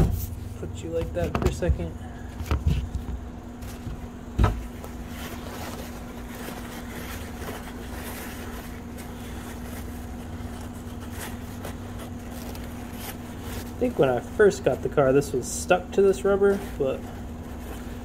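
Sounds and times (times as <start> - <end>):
steady low hum: 0.0 - 18.0
paper towel rustling and rubbing: 1.2 - 18.0
thump: 4.4 - 4.6.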